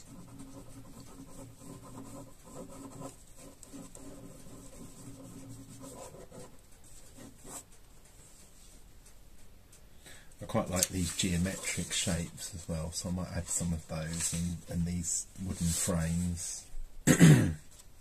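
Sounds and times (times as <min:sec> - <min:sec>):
pen scribbling on paper: 0:00.0 - 0:07.6.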